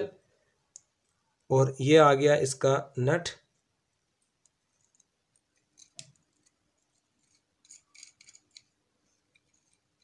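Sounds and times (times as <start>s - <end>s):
small metallic clicks and scrapes: 4.4s - 10.0s.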